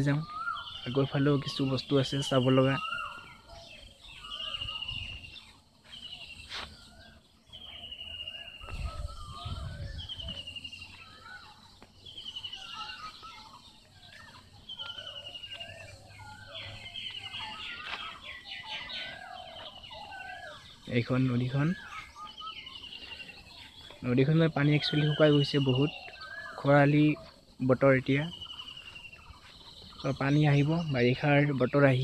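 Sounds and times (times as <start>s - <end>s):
birds calling buzzy note: 0.0s - 32.0s
low bird warbling: 0.0s - 32.0s.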